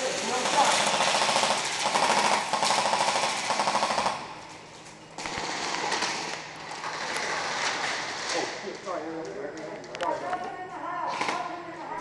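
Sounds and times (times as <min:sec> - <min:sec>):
airsoft guns firing full-auto: 0:00.0 - 0:04.3, 0:05.2 - 0:08.2.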